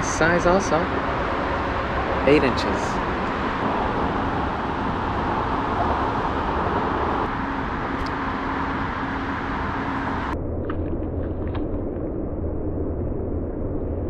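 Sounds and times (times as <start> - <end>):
road traffic rushing: 0.0 - 10.4.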